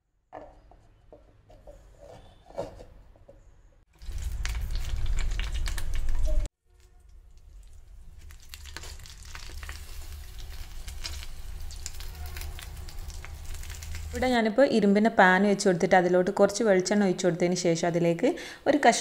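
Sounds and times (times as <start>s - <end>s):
oil sizzling and crackling in pan: 4.0s - 6.4s, 7.1s - 14.3s.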